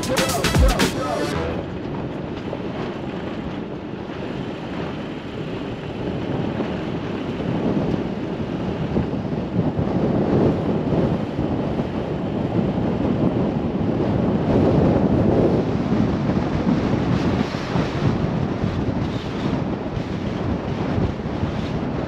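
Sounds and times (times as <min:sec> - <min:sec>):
wind buffeting microphone: 0:01.4 - 0:22.0.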